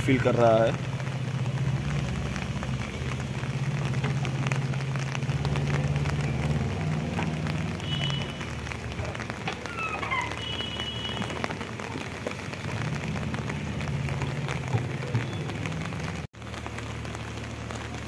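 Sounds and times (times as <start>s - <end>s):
diesel engine running: 0.0s - 9.5s
rain pattering: 0.0s - 18.0s.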